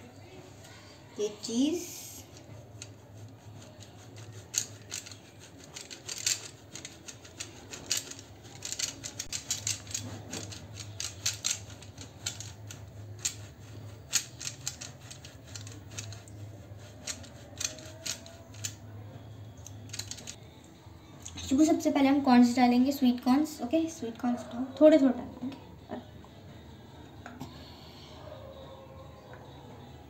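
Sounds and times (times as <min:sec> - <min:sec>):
cheese grated on metal grater: 0:01.3 - 0:18.8.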